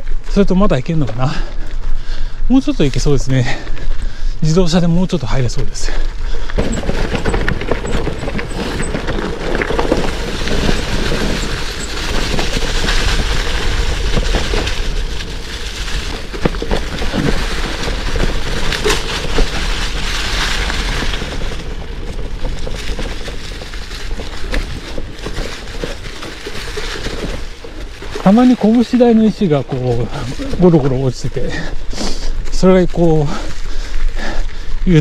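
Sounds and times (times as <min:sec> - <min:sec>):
bike tyres crunching over rocks: 0:00.0 - 0:35.0
bike clicks and knocks: 0:06.4 - 0:29.3.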